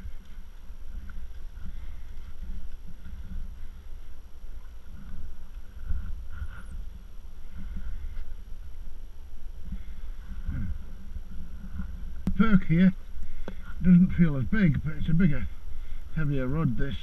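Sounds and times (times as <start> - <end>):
wind buffeting microphone: 0.0 - 17.0.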